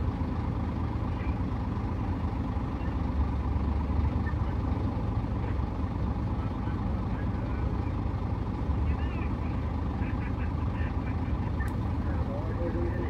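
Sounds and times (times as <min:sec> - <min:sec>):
heavy machinery diesel rumble: 0:00.0 - 0:13.0.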